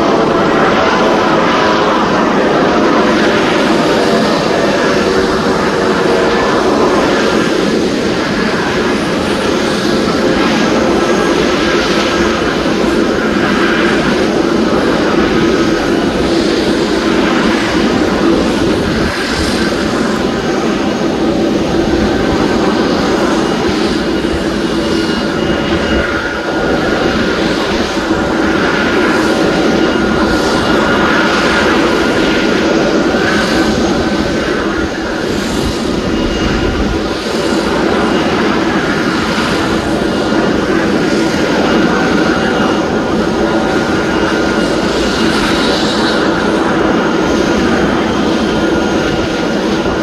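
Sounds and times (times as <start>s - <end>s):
helicopter turbine whine: 0.0s - 50.0s.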